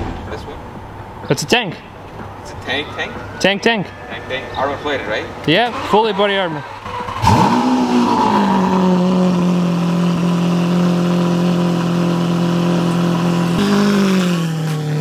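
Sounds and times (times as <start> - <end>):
car engine revving and idling: 5.6 - 15.0.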